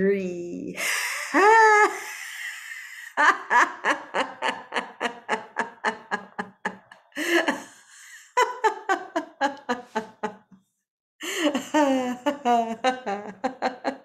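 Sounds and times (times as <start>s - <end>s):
person laughing staccato: 1.2s - 10.3s.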